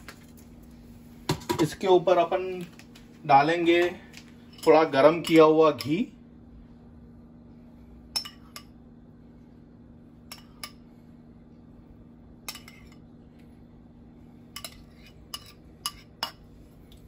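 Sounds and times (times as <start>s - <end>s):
faint steady hum: 0.0s - 17.0s
metal spoon clinking on pot: 4.5s - 6.0s, 8.1s - 8.8s, 12.5s - 13.0s, 14.6s - 16.4s.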